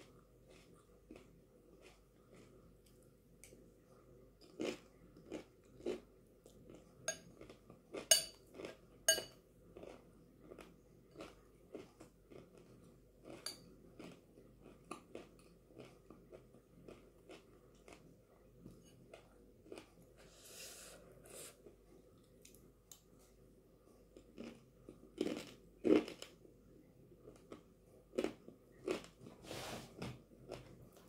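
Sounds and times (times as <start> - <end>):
crunchy chewing: 4.4 - 8.9, 14.0 - 18.1, 24.2 - 26.4
metal spoon clinking on glass bowl: 8.1 - 8.4, 9.1 - 9.4, 13.4 - 13.6.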